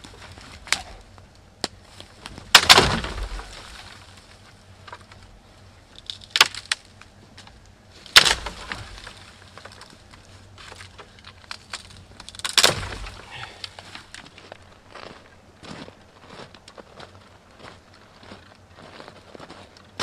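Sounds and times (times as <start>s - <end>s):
dry branches snapping: 0.0s - 5.3s, 5.9s - 14.7s
twigs rustling: 0.0s - 20.0s.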